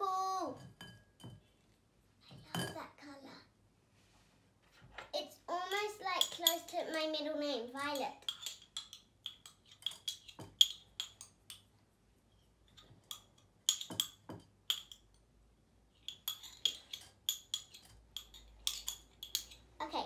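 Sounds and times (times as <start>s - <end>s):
metal spoon clinking in glass: 5.7s - 6.8s, 8.2s - 11.6s, 13.0s - 15.2s, 16.0s - 19.7s.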